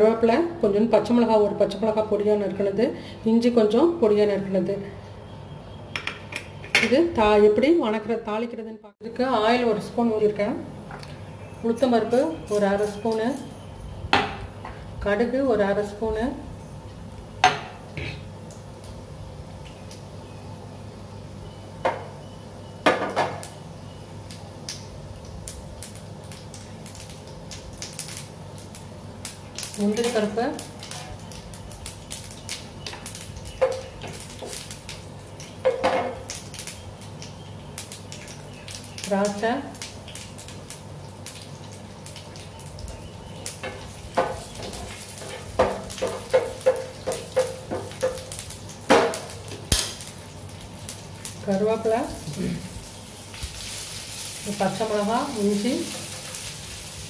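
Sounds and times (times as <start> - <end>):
seeds popping in hot oil: 10.9 - 14.8, 17.2 - 20.5, 22.8 - 57.0
spatula knocking on pan: 45.5 - 48.3.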